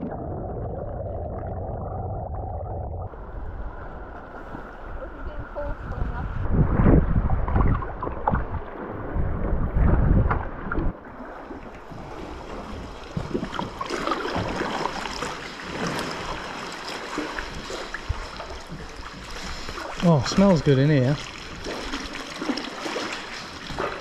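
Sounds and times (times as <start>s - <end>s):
wind buffeting microphone: 3.1s - 11.0s
water lapping and splashing: 3.1s - 24.0s
paddle strokes in water: 7.5s - 24.0s.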